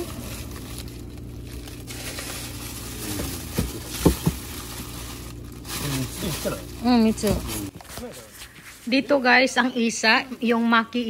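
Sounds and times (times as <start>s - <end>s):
plastic bags crinkling: 0.0s - 8.2s
freezer low hum: 0.0s - 11.0s
frozen blocks knocking: 3.2s - 4.7s.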